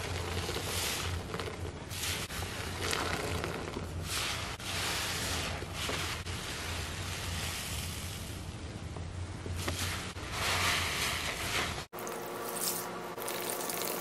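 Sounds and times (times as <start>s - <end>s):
sponges squelching with foam: 0.0s - 8.5s
low steady hum: 0.0s - 14.0s.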